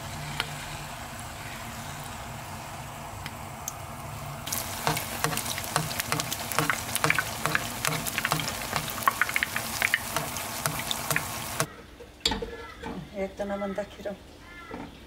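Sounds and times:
batter sizzling in hot oil: 0:00.0 - 0:11.7.

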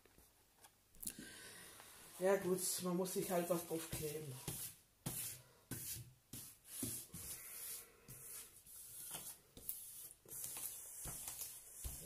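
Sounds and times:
hands swishing over plastic film: 0:06.8 - 0:12.0.

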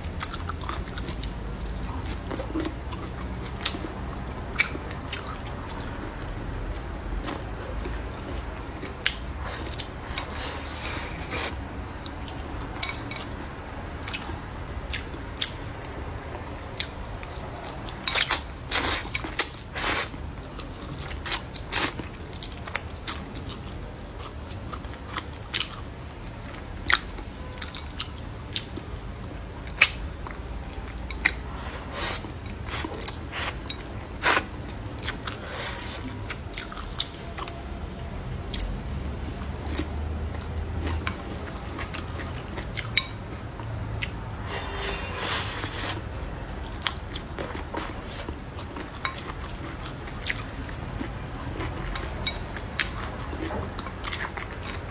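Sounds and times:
chewing and slurping noodles: 0:26.8 - 0:37.6, 0:39.4 - 0:54.9.

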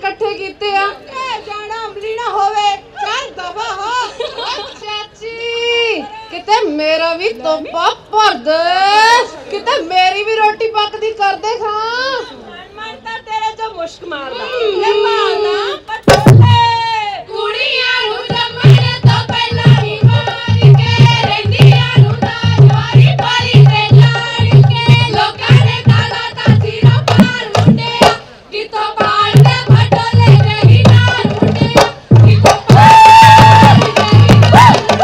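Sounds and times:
women singing in chorus: 0:14.3 - 0:35.0
steady drum beat: 0:16.0 - 0:16.9, 0:17.8 - 0:35.0.

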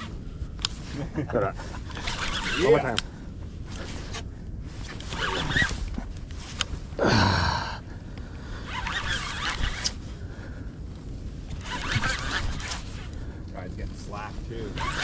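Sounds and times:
fishing reel gears whirring: 0:01.8 - 0:03.0, 0:08.6 - 0:10.0, 0:11.5 - 0:13.2, 0:14.6 - 0:15.0.

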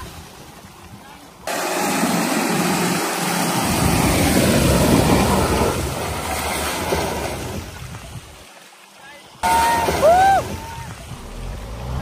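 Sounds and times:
tyres in mud: 0:00.0 - 0:12.0
car engine working hard: 0:01.5 - 0:07.8, 0:09.4 - 0:12.0.

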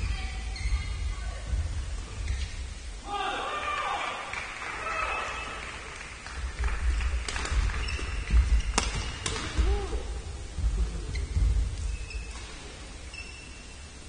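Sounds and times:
footsteps thumping on court floor: 0:06.4 - 0:11.9
rackets smacking shuttlecock: 0:07.3 - 0:10.0.

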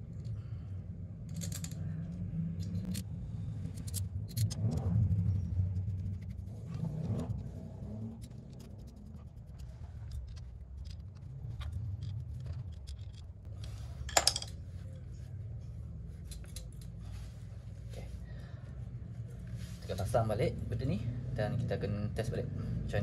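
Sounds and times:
steady low hum: 0:00.0 - 0:23.0
clicks and taps of metal parts: 0:08.2 - 0:13.3, 0:14.1 - 0:14.6, 0:16.2 - 0:17.0.

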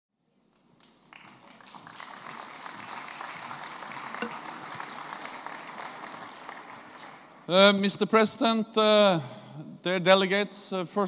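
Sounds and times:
audience applauding: 0:00.5 - 0:07.5.

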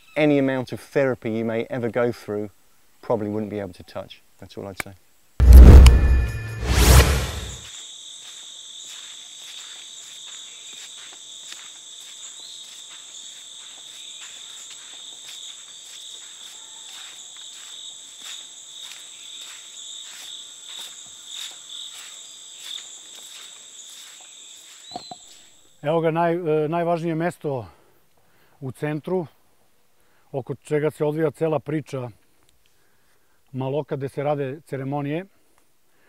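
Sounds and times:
deep sound effect: 0:05.4 - 0:07.6
insects chorus: 0:07.6 - 0:27.3
footsteps on dirt path: 0:08.2 - 0:25.3.

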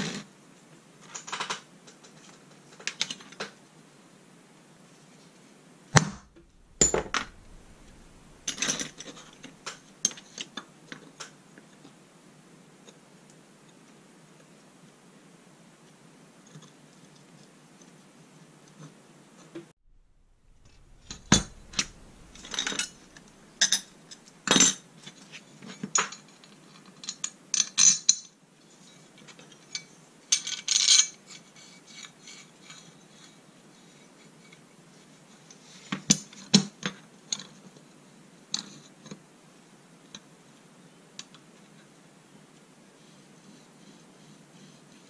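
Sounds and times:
steel bars clinking: 0:06.0 - 0:09.8, 0:19.9 - 0:24.2.

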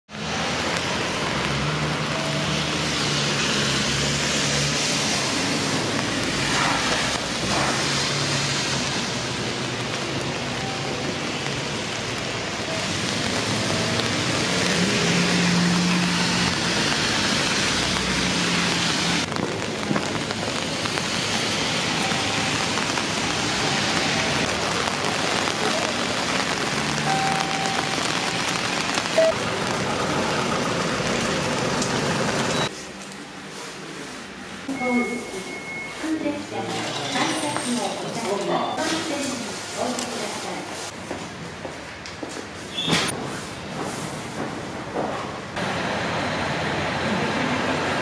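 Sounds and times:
vehicle engine hum: 0:00.1 - 0:33.3
rain on wet pavement: 0:00.1 - 0:33.7, 0:34.6 - 0:41.0, 0:45.5 - 0:48.0.

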